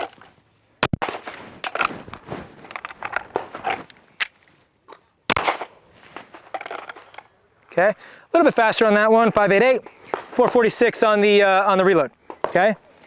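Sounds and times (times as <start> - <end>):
pistol shots: 5.3 - 5.8
pistol reload clicks and rattles: 6.4 - 7.3.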